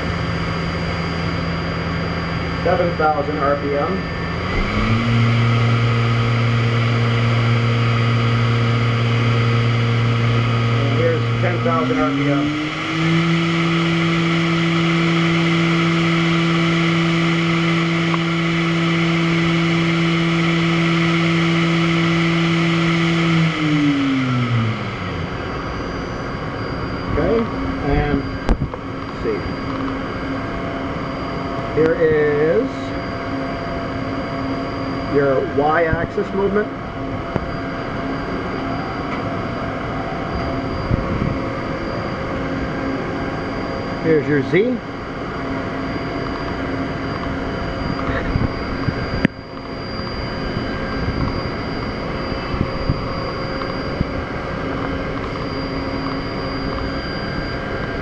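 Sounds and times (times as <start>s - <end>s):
faint high steady tone: 0.0s - 4.5s
machine spindle whine: 0.0s - 58.0s.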